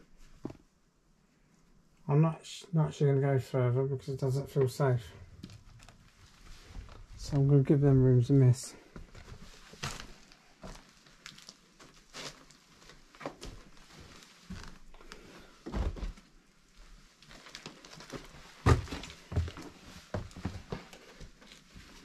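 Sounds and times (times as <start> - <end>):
footsteps: 18.1 - 22.0.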